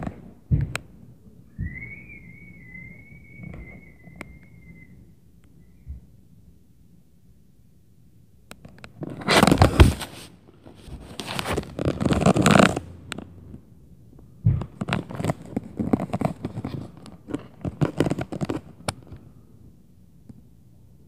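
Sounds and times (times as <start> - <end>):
heavy thud: 0.5 - 0.8
loud scraping and rustling: 9.0 - 12.8.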